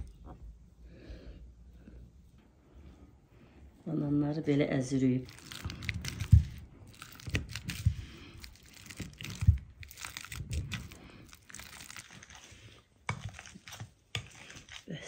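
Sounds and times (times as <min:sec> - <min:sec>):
bananas squishing by hand: 0:00.0 - 0:15.0.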